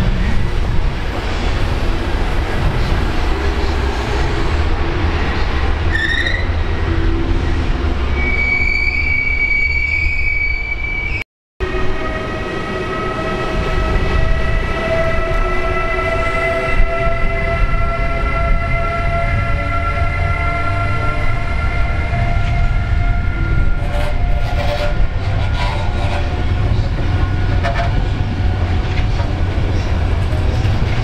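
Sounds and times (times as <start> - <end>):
rising squeak: 8.2 - 11.2
train low rumble: 11.7 - 31.0.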